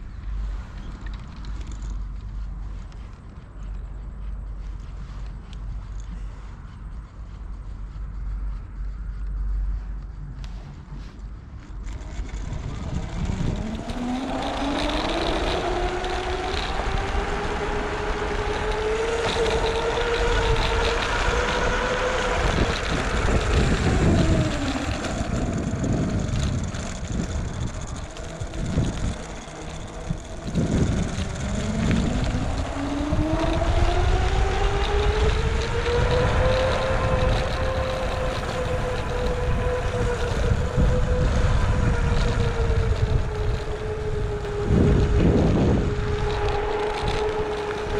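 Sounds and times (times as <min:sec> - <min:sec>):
wind rumble on microphone: 0:00.0 - 0:47.9
vehicle motor whining: 0:11.1 - 0:47.9.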